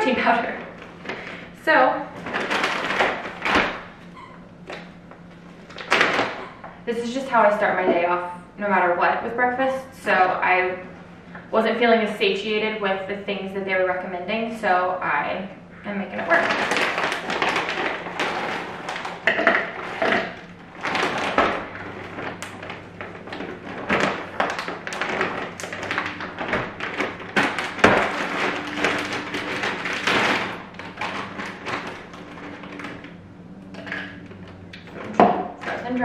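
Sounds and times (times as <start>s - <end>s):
plastic bag crinkling: 0.0s - 4.1s, 16.2s - 33.1s.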